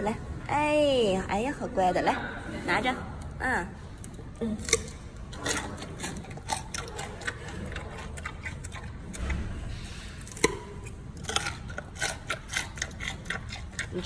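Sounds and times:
panda crunching carrot: 0:04.0 - 0:14.0.

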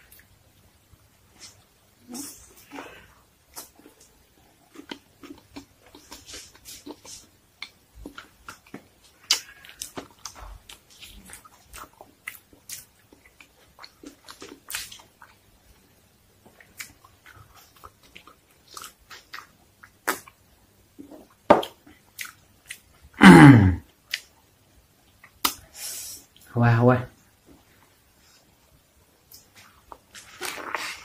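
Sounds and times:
person chewing food: 0:02.4 - 0:20.4, 0:21.0 - 0:23.1, 0:29.2 - 0:31.0.

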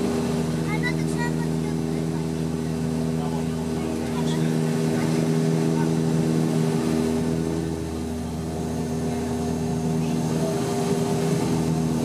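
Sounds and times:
propeller drone: 0:00.0 - 0:12.0.

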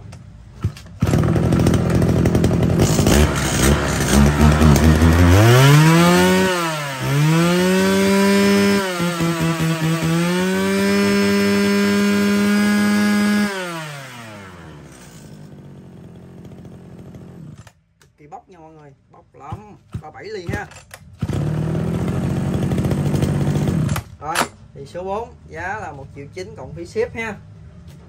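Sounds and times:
brushcutter engine revving: 0:01.0 - 0:17.7, 0:21.2 - 0:24.1.

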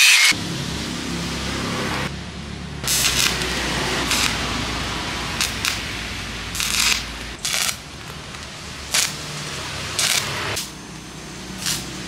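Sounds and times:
arc welder crackling and hissing: 0:00.0 - 0:00.4, 0:02.8 - 0:12.0.

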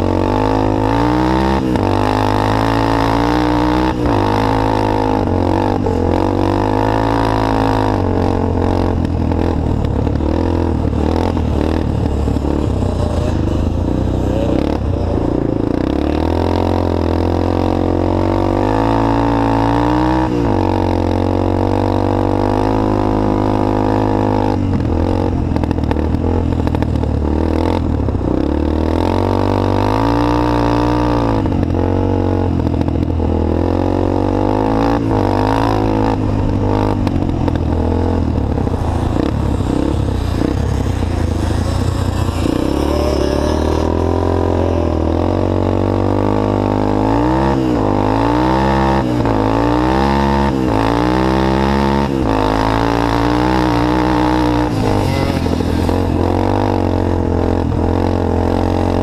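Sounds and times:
three-wheeler engine revving: 0:00.0 - 0:59.0.

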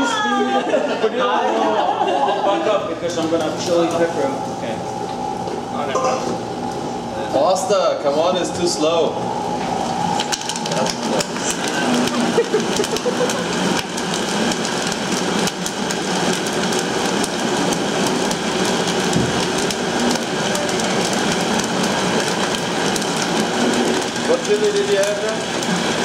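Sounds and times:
blender running: 0:08.1 - 0:26.0.

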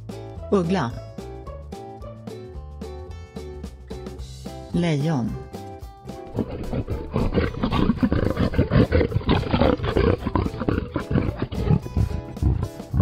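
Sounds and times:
lion roaring: 0:06.3 - 0:13.0.

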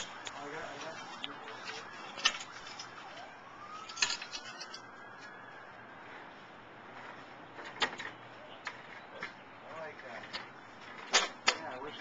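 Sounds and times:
distant siren wailing: 0:00.0 - 0:06.9.

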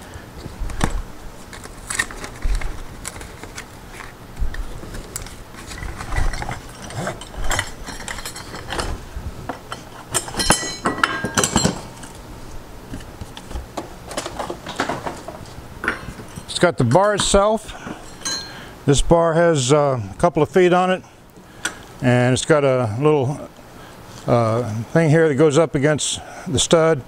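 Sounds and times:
metal parts clinking and rattling: 0:05.2 - 0:09.0, 0:09.7 - 0:12.1, 0:18.0 - 0:18.6.

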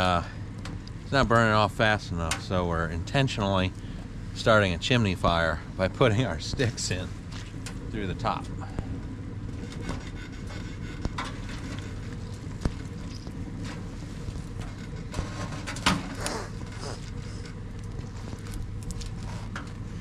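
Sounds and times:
fire rumbling in stovepipe: 0:00.0 - 0:20.0
fire pops and knocks: 0:09.5 - 0:19.8.

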